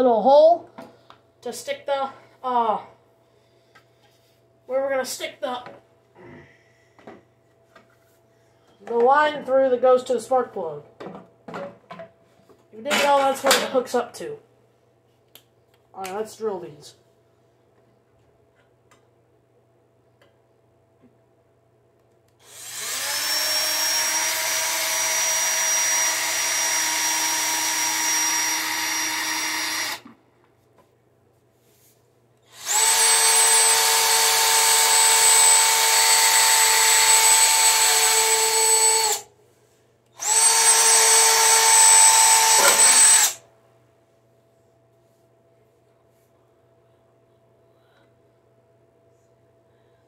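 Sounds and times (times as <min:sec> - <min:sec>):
cordless drill whining: 0:22.4 - 0:30.1, 0:32.4 - 0:39.3, 0:40.2 - 0:43.4.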